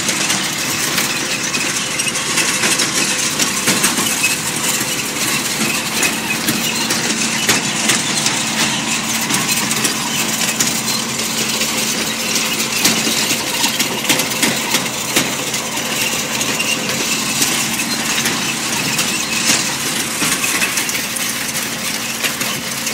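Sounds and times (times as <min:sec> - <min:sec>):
tractor diesel engine running: 0:00.0 - 0:22.9
metal clatter and clinking: 0:00.1 - 0:22.9.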